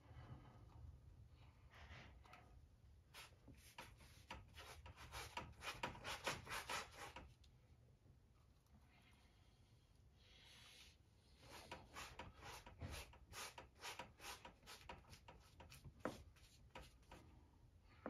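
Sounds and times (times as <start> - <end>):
hand rubbing paint on canvas: 3.1 - 7.2, 10.4 - 17.2.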